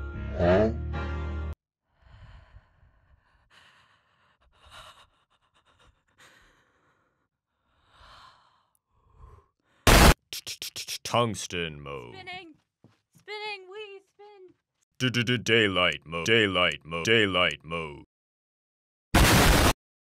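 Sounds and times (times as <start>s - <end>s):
loud burst of noise: 9.9s - 10.2s, 19.2s - 19.8s.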